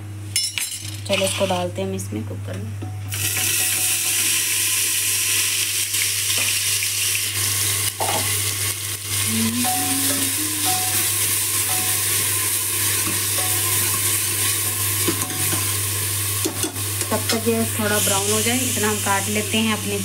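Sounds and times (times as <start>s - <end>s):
onions sizzling in oil: 3.1s - 20.0s
low hum: 9.2s - 11.9s.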